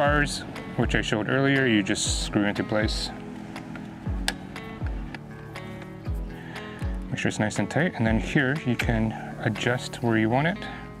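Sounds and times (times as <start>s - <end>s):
deep bass drum beat: 4.1s - 5.2s.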